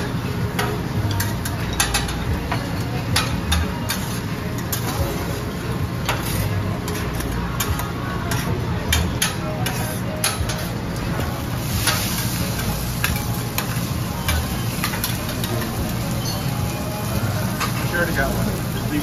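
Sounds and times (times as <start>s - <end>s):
steady background noise: 0.0s - 19.0s
metal spatulas scraping griddle: 3.9s - 10.8s.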